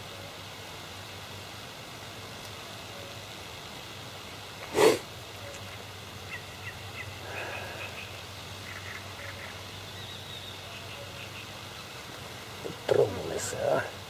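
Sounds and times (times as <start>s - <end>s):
outdoor background noise: 0.0s - 14.0s
faint bird chirps: 5.4s - 12.1s.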